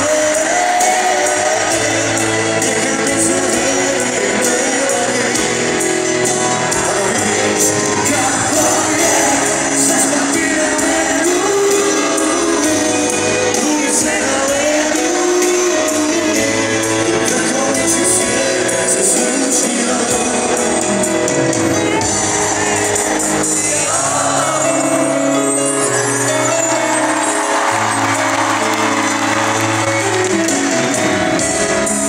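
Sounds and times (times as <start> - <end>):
man singing: 0.0 - 25.7
crowd noise: 0.0 - 32.0
live pop-rock band: 0.0 - 32.0.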